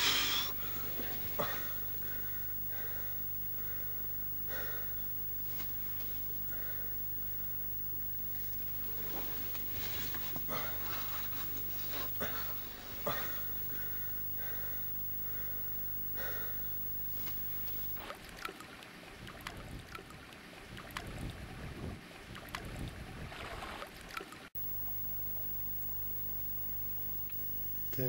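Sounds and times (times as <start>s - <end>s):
steady electrical hum: 0.0s - 18.0s, 24.6s - 28.0s.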